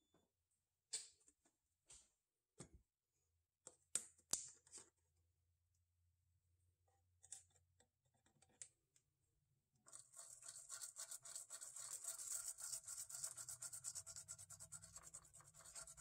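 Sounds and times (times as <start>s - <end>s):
brush scrubbing circuit board: 9.9s - 16.0s.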